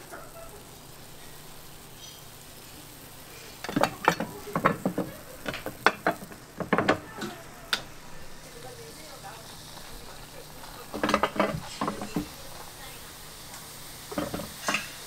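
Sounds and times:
metal clanks and knocks: 0:03.6 - 0:07.4, 0:10.8 - 0:12.4, 0:14.1 - 0:15.0.

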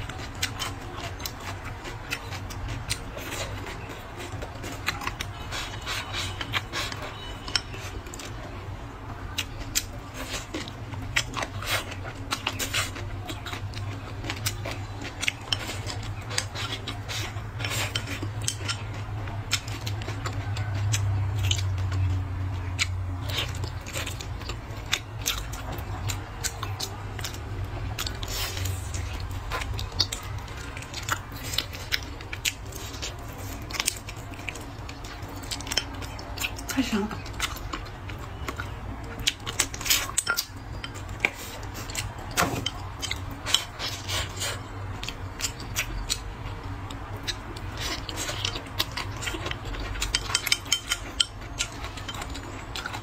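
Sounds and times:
biting and chewing food: 0:00.0 - 0:53.0.

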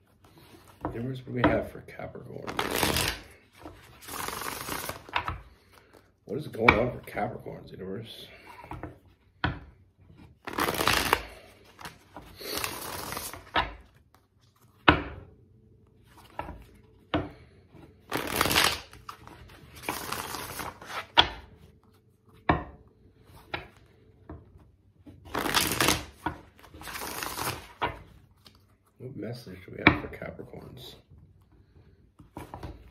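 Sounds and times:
cards being shuffled: 0:02.3 - 0:06.1, 0:10.2 - 0:14.9, 0:17.8 - 0:22.4, 0:25.0 - 0:29.0.

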